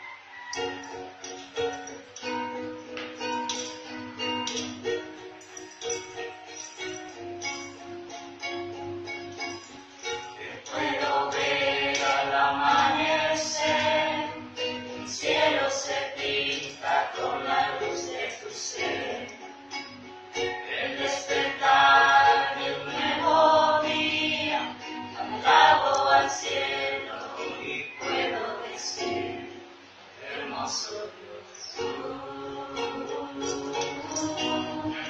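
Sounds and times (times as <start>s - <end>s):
strummed ukulele: 0.0s - 35.0s
women singing a hymn: 10.4s - 19.5s, 20.6s - 30.9s, 31.8s - 35.0s.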